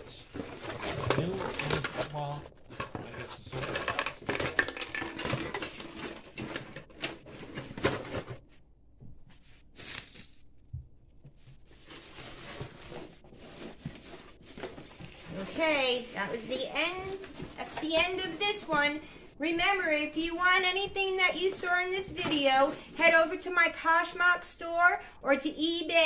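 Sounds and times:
packaging rustling: 0.2 - 8.4, 9.8 - 10.5, 11.6 - 16.1.

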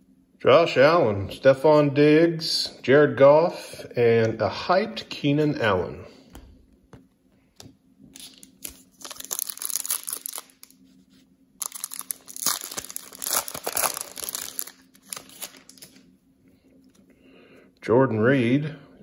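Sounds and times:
plastic wrapper crinkling: 8.1 - 10.9, 11.6 - 16.0.

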